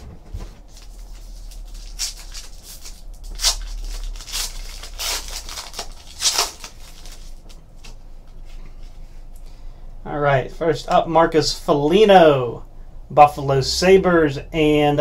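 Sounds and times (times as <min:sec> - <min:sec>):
foil wrapper crinkling and ripping: 0:00.6 - 0:08.0.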